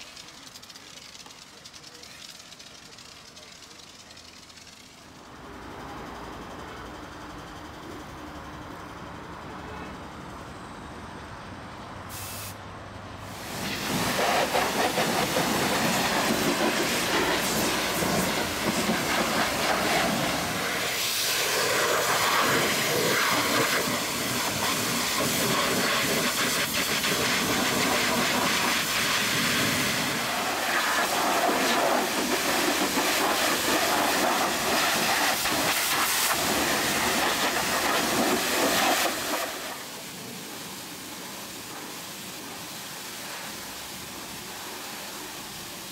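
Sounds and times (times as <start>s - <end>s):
jet wash spraying water: 13.3s - 45.9s.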